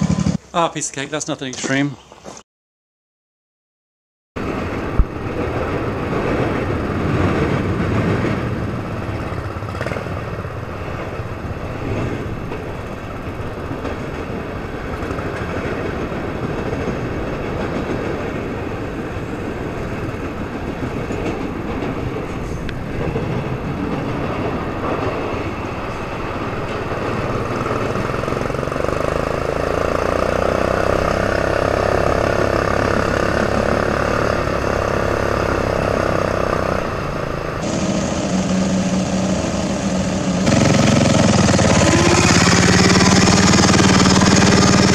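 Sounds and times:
riding mower engine running: 0.0 - 1.8, 25.9 - 44.9
freight train passing: 4.4 - 44.9.

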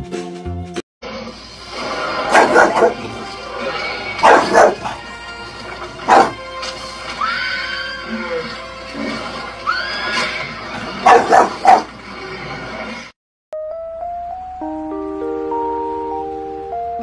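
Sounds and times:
background music: 0.0 - 11.6, 13.6 - 17.0
dog barking: 2.3 - 3.0, 4.2 - 5.0, 6.1 - 6.4, 11.0 - 11.9.

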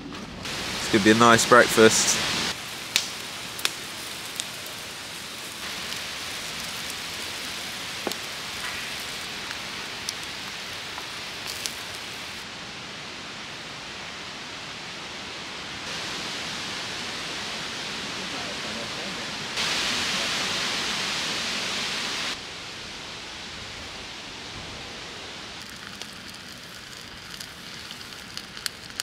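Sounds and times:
campfire wood crackling: 0.0 - 29.0
sausages and bacon sizzling: 0.4 - 12.5, 19.6 - 22.4, 25.6 - 29.0.

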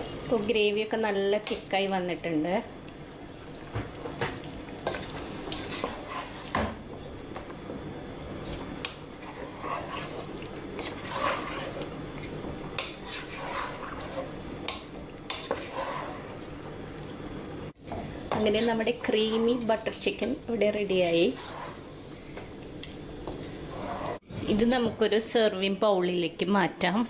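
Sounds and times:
wooden spoon stirring thick gravy: 4.4 - 6.5, 8.5 - 16.5, 21.0 - 22.1.

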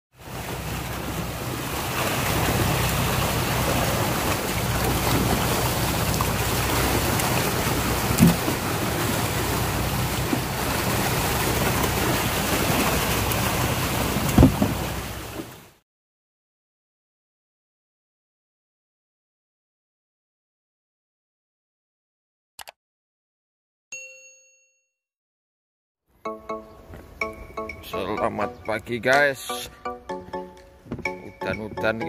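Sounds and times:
fish thrashing and splashing water: 0.2 - 15.6.

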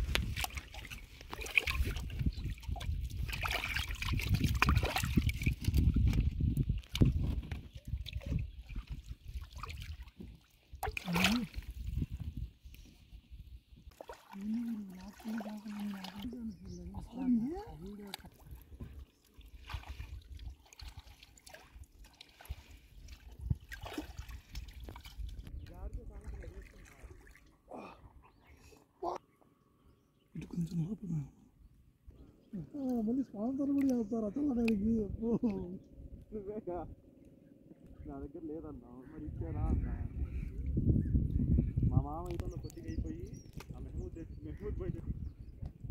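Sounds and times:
small splashes: 0.0 - 12.0, 13.9 - 25.4, 26.1 - 28.0
river water sloshing and trickling: 0.0 - 29.3, 32.2 - 34.8.

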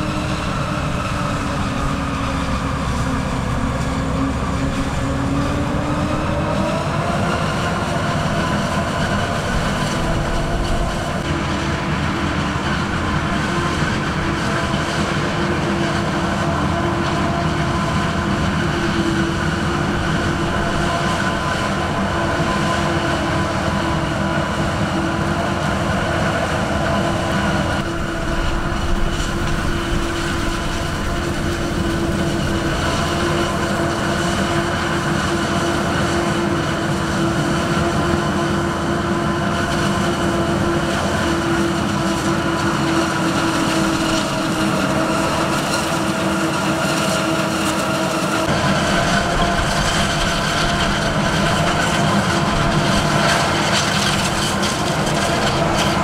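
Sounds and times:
forage harvester droning: 0.0 - 56.0
tractor engine: 0.0 - 56.0.

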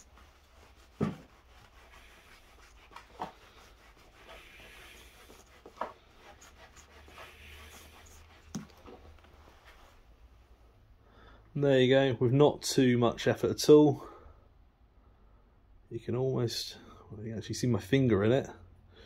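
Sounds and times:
cloth rubbing on metal ring: 0.0 - 10.0.

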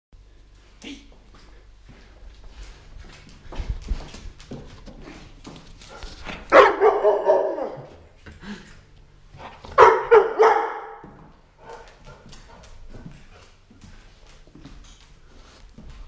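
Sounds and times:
dog barking: 6.5 - 7.9, 9.8 - 11.0.

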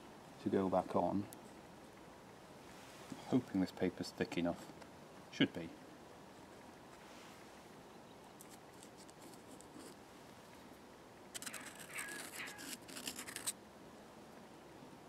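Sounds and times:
paper scratching and crackling: 11.4 - 13.6.

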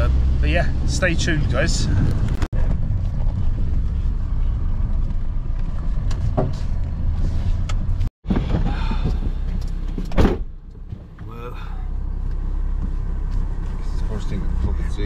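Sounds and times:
van cabin rumble: 0.0 - 15.0
car door shutting: 8.3 - 11.3.

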